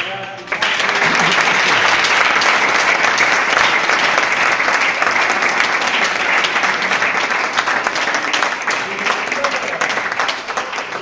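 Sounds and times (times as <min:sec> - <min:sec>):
audience applause: 0:00.0 - 0:11.0.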